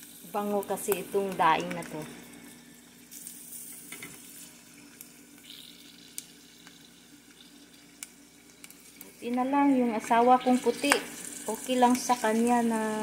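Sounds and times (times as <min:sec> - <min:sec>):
fish sizzling in hot oil: 0:00.0 - 0:13.0
metal tongs clicking on pot: 0:10.8 - 0:11.1.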